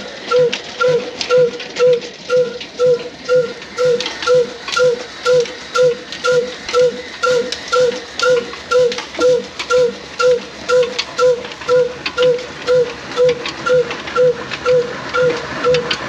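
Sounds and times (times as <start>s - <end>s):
diesel engine running slowly: 0.0s - 16.0s.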